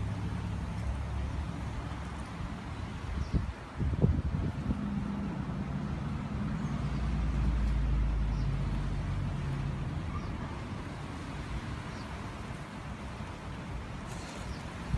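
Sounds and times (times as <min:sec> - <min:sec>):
vehicle engine passing by: 0:04.1 - 0:11.5.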